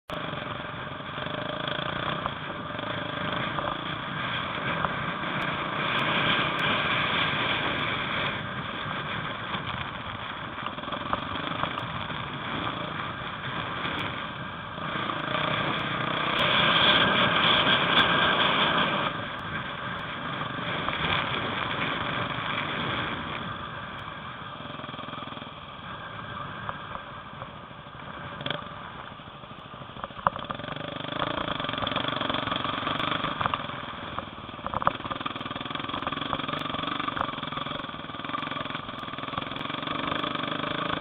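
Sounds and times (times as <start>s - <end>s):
motorcycle engine revving: 0.0s - 27.4s, 28.0s - 29.0s, 29.8s - 41.0s
sharp ticks: 30.0s - 41.0s.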